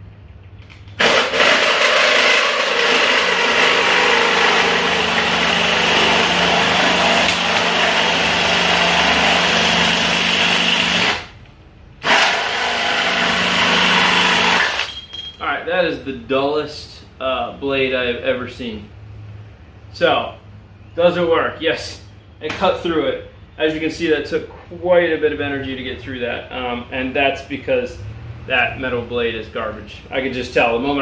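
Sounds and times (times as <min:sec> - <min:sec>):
saw blade cutting copper: 0:01.0 - 0:11.2
drill motor hum: 0:01.0 - 0:11.3, 0:12.0 - 0:14.9.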